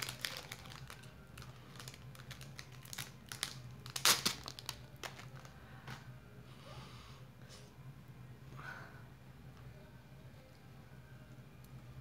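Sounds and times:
plastic wrapper crinkling: 0:00.0 - 0:05.6.

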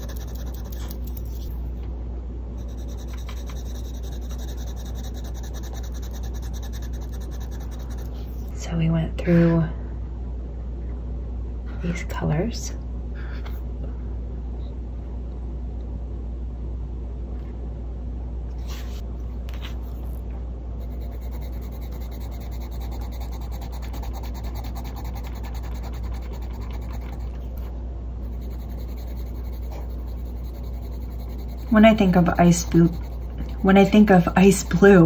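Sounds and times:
pencil scratching on paper: 0:00.0 - 0:01.6, 0:02.6 - 0:08.5, 0:20.8 - 0:35.0
steady low hum: 0:00.0 - 0:35.0.

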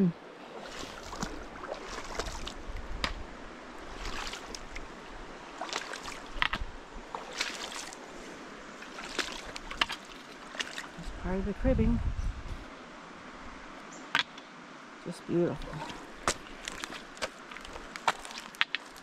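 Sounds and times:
river water flowing: 0:00.0 - 0:11.6, 0:12.5 - 0:19.0
footsteps on rocky ground: 0:15.8 - 0:19.0.

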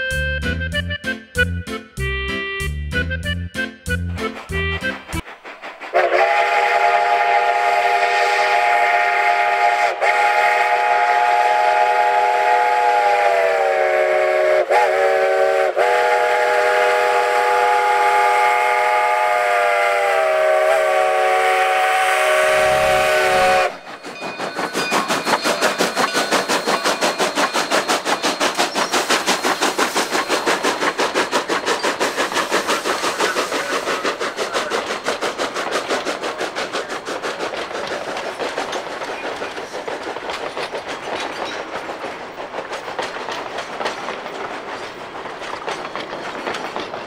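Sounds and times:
locomotive exhaust chuffing: 0:03.3 - 0:47.0
steam locomotive chime whistle: 0:06.0 - 0:31.9.

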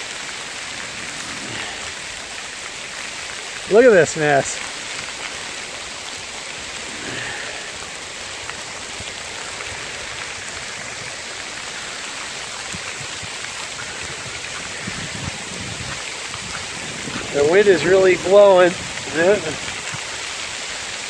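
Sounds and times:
hail pellets ticking: 0:00.0 - 0:21.0
sleet hissing: 0:00.8 - 0:02.0.

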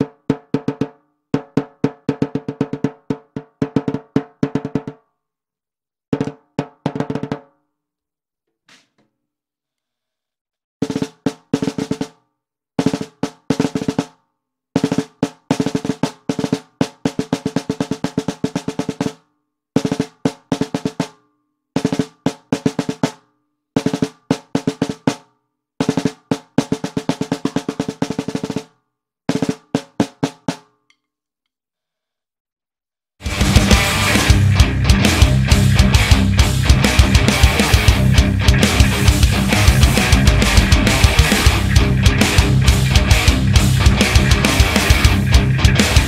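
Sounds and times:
snare drum rolls: 0:33.2 - 0:46.0.

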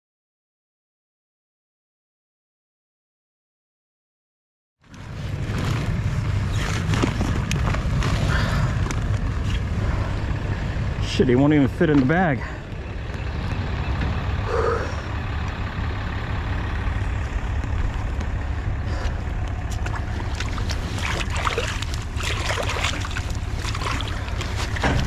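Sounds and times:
feet splashing through water: 0:19.6 - 0:25.0.

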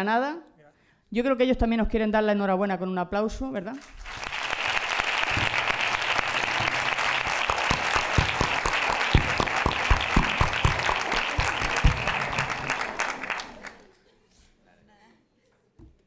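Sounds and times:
audience applauding: 0:03.8 - 0:14.0.

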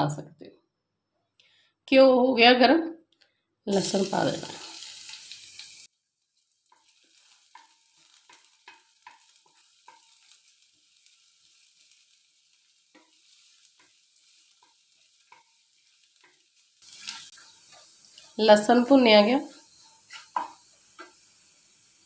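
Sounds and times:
garlic sizzling in a pan: 0:03.7 - 0:22.0
wooden spatula scraping steel pan: 0:16.2 - 0:18.4, 0:19.2 - 0:21.2.

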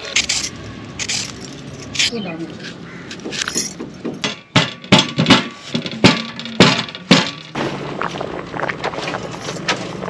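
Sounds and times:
pestle knocking on steel plate: 0:04.1 - 0:07.4.

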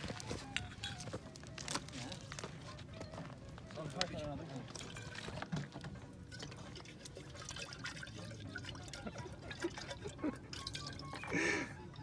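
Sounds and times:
water sloshing in kettle: 0:04.6 - 0:11.6.

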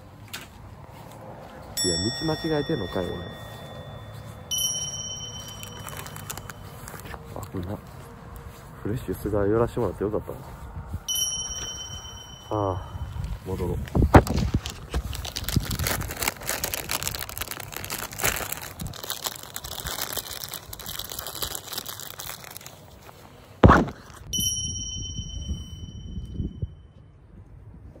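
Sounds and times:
bell-like ding: 0:01.8 - 0:06.8, 0:11.1 - 0:13.3, 0:24.3 - 0:27.1
plastic wrapper crackling: 0:05.4 - 0:07.5, 0:13.9 - 0:23.1.

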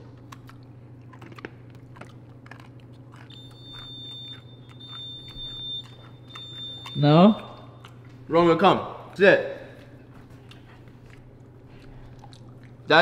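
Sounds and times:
person chewing crunchy treat: 0:00.0 - 0:08.3, 0:09.0 - 0:13.0
high-pitched electronic tone: 0:03.3 - 0:07.8.

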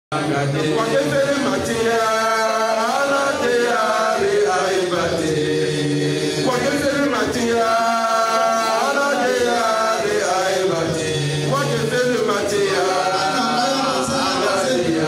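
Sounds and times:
man chanting: 0:00.1 - 0:15.0.

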